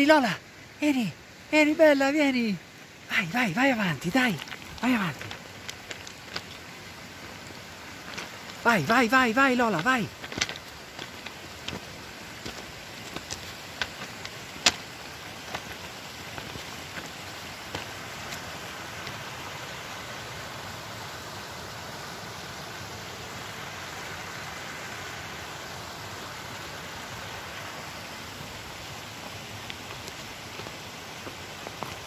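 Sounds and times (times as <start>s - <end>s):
mountain stream rushing: 0.0s - 32.0s
footsteps on loose stones: 3.6s - 19.3s, 28.4s - 32.0s.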